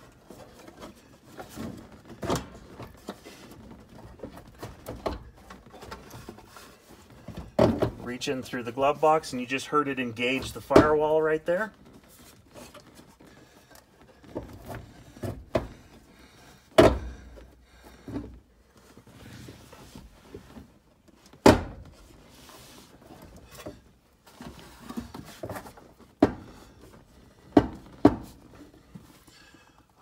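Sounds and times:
knocks and clunks of metal parts: 0.2 - 8.1, 14.2 - 18.4.

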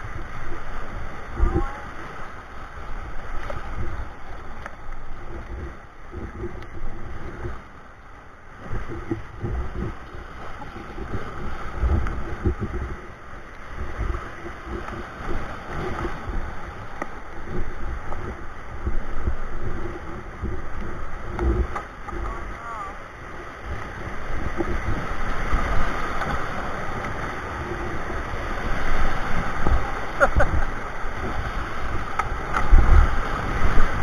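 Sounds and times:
paddle strokes splashing: 0.0 - 34.0
wind buffeting microphone: 8.6 - 34.0
whitewater rapids rushing: 21.5 - 34.0.

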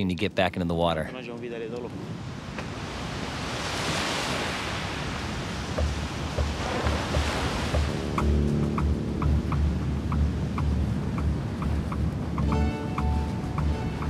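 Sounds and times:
ocean surf breaking: 0.2 - 14.0
wind on microphone: 1.3 - 14.0
low regular thumping beat: 5.6 - 14.0.

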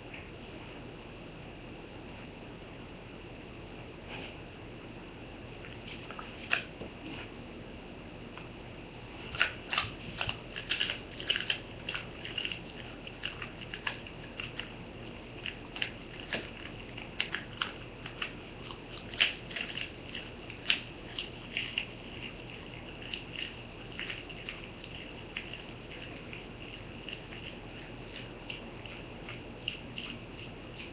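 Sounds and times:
dog chewing and crunching: 5.6 - 6.8, 9.2 - 30.9.

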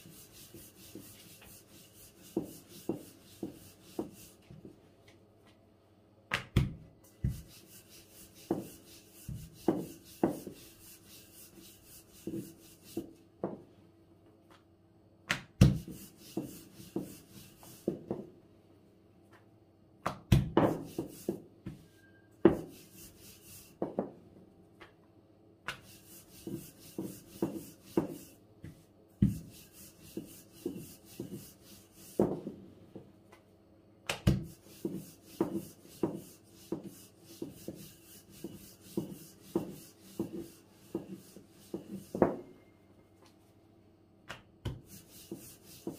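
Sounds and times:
rolling pin rubbing on dough: 0.0 - 4.5, 7.2 - 13.2, 15.7 - 18.2, 20.6 - 21.4, 22.5 - 24.1, 25.7 - 32.5, 34.4 - 42.4, 44.7 - 45.9.

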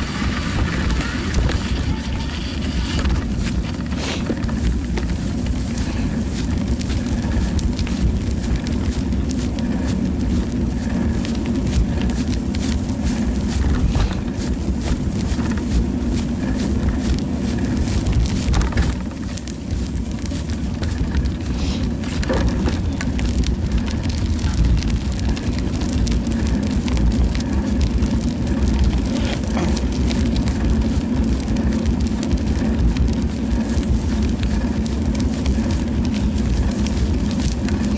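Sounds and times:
bicycle tyres on asphalt: 0.0 - 37.9
small clicks and rattles: 0.0 - 37.9
wind rumble on microphone: 0.0 - 37.9.

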